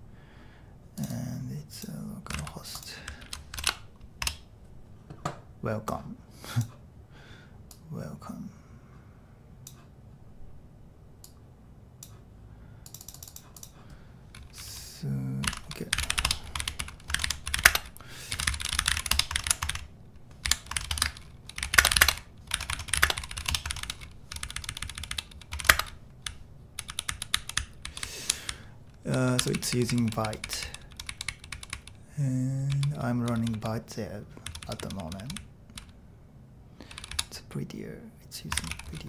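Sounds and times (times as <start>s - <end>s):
typing on a computer keyboard: 2.3s - 4.4s, 12.8s - 14.6s, 15.4s - 31.9s, 32.7s - 33.8s, 34.4s - 36.0s, 36.9s - 37.3s, 38.5s - 39.0s.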